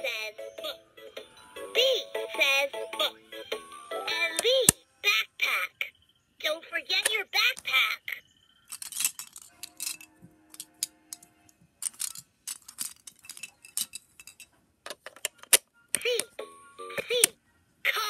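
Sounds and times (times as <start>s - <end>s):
plastic toys clicking: 8.7s - 16.4s.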